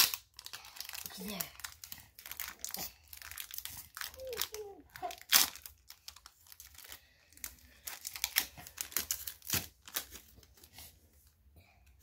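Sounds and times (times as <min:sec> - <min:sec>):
foil wrapper crinkling and tearing: 0:00.0 - 0:10.7.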